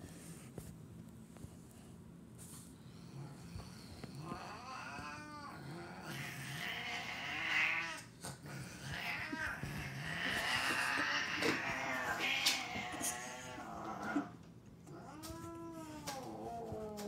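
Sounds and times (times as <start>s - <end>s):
cats yowling: 4.2s - 17.0s.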